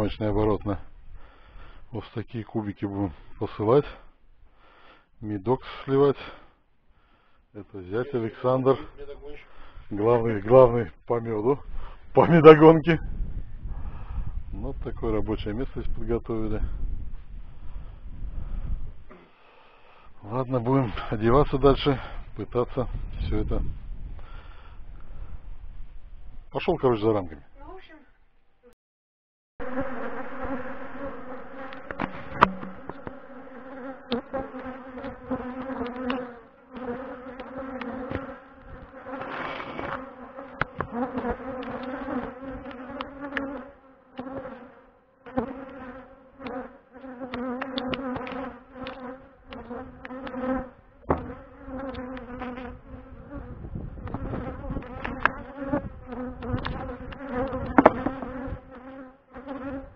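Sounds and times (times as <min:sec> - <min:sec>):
bees buzzing: 0:29.6 - 0:59.9
sharp knocks and clicks: 0:31.8 - 0:33.2, 0:57.7 - 0:58.3.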